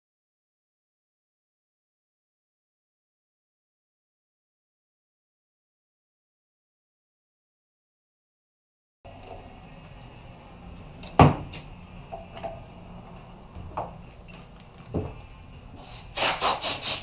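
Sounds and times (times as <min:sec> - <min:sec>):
harsh pumping strokes: 0:15.8 - 0:17.0.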